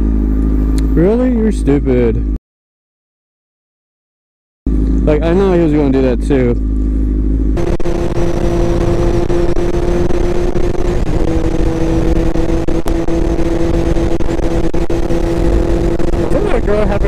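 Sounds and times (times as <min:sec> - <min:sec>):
motorcycle engine cruising: 0:00.0 - 0:02.4, 0:04.7 - 0:17.0
wind rush on microphone: 0:07.6 - 0:17.0.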